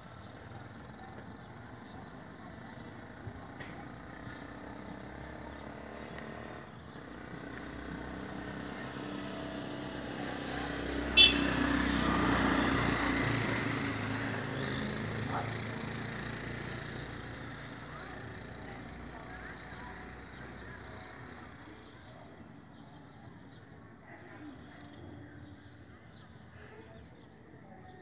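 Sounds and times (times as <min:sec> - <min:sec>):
motor vehicle passing by: 0:02.4 - 0:23.6.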